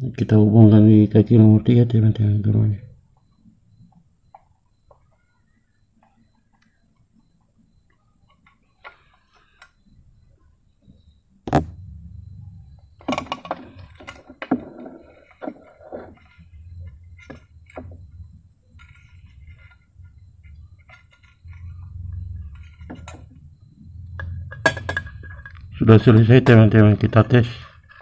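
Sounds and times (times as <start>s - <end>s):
amplifier handling noise: 11.4s - 11.8s
low rumble: 11.6s - 13.0s.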